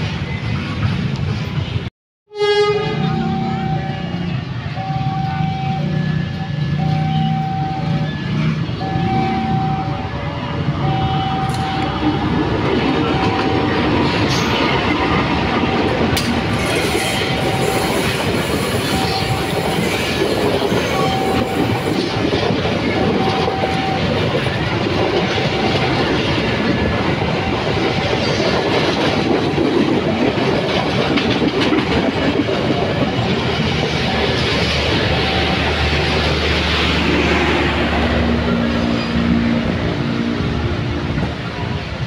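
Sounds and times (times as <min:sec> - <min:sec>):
level-crossing alarm tone: 0:03.0 - 0:29.4, 0:32.6 - 0:38.6
train wheels clattering on rails: 0:11.5 - 0:42.0.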